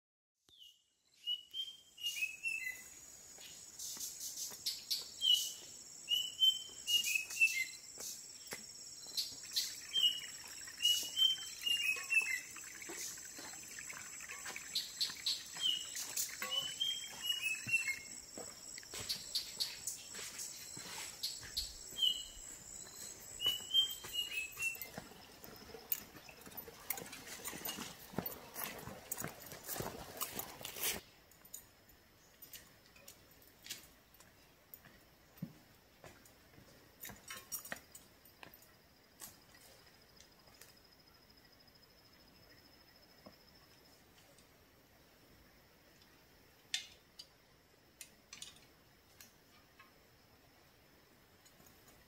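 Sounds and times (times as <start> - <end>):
high chirps: 8.9 - 25.0
bird singing falling notes: 9.0 - 18.2, 21.3 - 25.0.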